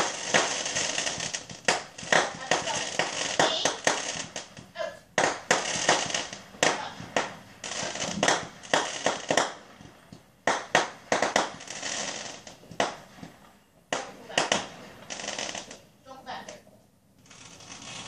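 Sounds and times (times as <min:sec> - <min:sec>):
fireworks bursting with bangs: 0:00.0 - 0:18.0
fireworks crackling: 0:00.0 - 0:18.0.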